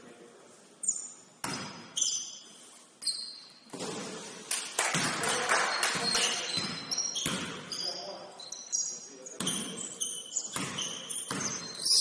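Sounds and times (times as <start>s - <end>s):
sneakers squeaking on court: 0.8s - 4.3s, 4.9s - 12.0s
basketball bouncing on gym floor: 1.4s - 2.0s, 4.9s - 5.3s, 6.0s - 7.8s, 9.3s - 12.0s.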